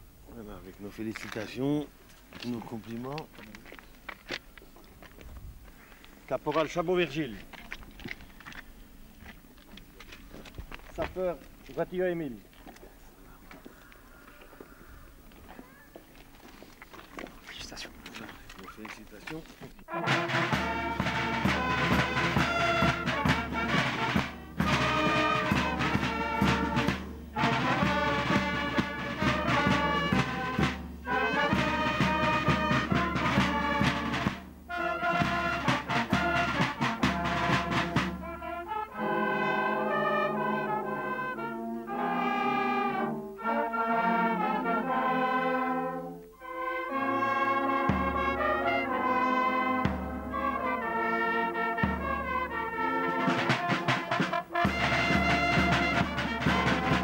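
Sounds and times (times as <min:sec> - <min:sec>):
brass band playing: 0:19.9 - 0:57.0.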